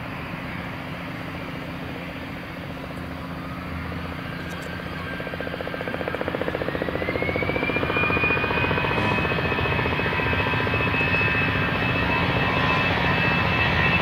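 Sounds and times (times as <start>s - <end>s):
jet engines spooling up: 3.2s - 14.0s
fast pulsing beat: 9.0s - 10.0s.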